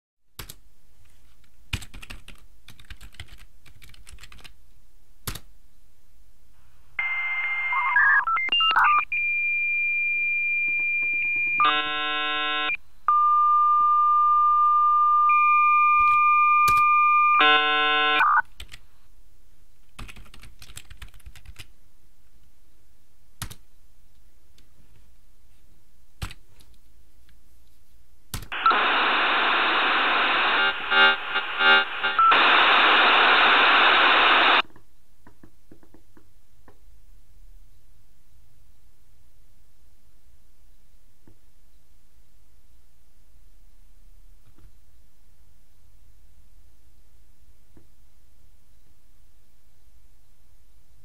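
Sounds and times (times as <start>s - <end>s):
computer keyboard clicks: 1.7s - 4.6s, 5.3s - 5.5s, 20.0s - 21.7s, 23.4s - 23.6s, 26.2s - 26.8s
dial-up modem tones: 7.0s - 18.4s, 28.6s - 34.6s.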